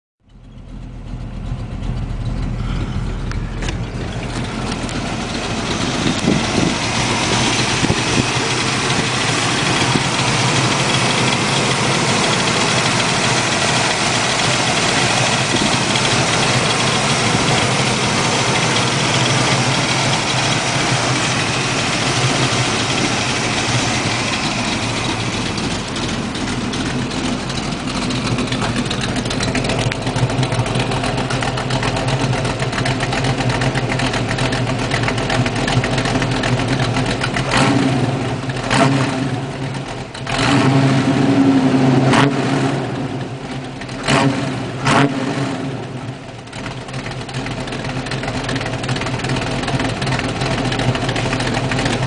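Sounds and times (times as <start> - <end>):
car engine idling: 0.2 - 52.0.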